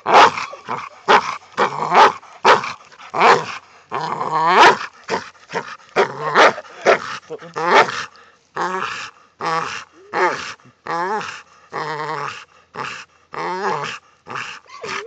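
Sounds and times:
dog growling and whining: 0:08.6 - 0:15.0.

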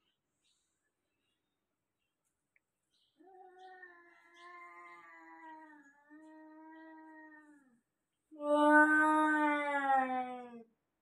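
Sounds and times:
cat yowling: 0:08.4 - 0:10.6.

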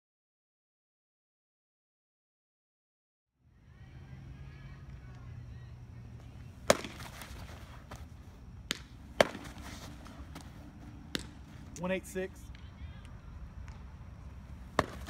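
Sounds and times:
baseball smacking into glove: 0:06.6 - 0:11.8, 0:14.7 - 0:15.0.

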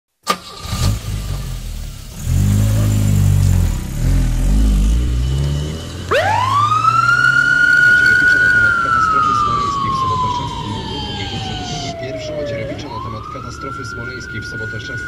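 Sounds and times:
vehicle engine running: 0:00.7 - 0:07.0
siren wailing: 0:04.6 - 0:15.0.

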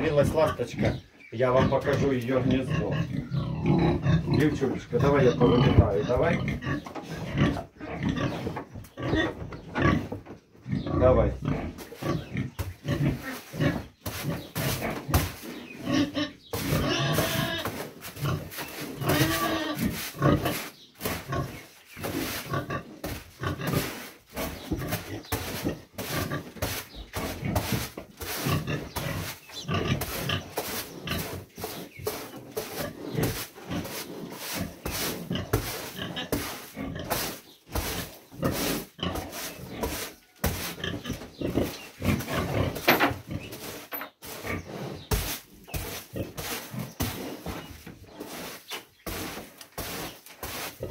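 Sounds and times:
pig grunting: 0:00.0 - 0:26.6, 0:27.2 - 0:31.8, 0:32.5 - 0:40.0, 0:40.7 - 0:45.1
broom sweeping the floor: 0:13.1 - 0:15.6, 0:16.6 - 0:40.9, 0:43.5 - 0:50.9.

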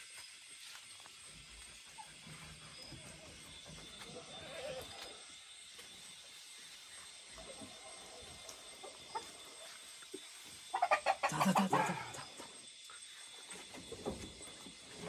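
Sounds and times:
chicken clucking: 0:07.3 - 0:12.4.

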